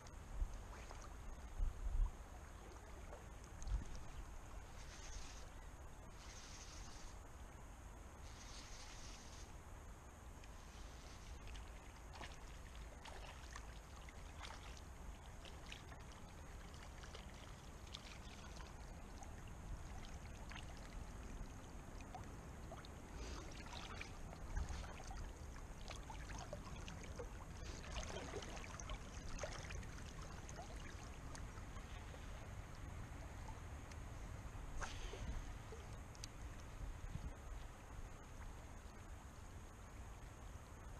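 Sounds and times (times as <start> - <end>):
river flowing: 2.2 - 40.9.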